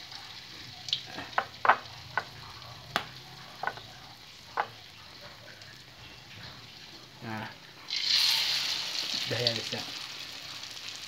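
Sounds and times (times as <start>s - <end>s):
chicken sizzling in hot oil: 0.0s - 11.0s
sharp oil pops: 2.9s - 3.8s.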